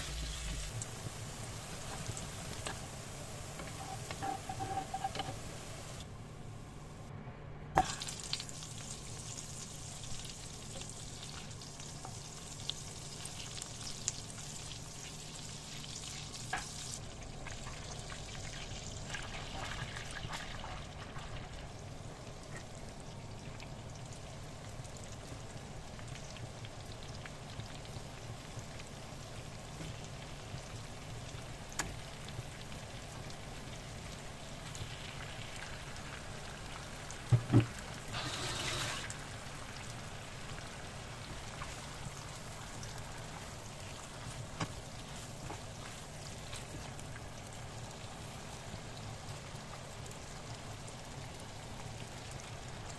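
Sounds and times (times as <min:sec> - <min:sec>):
food sizzling in frying pan: 0:00.0 - 0:06.0, 0:07.8 - 0:52.9
spatula stirring: 0:03.6 - 0:05.5, 0:41.5 - 0:47.1.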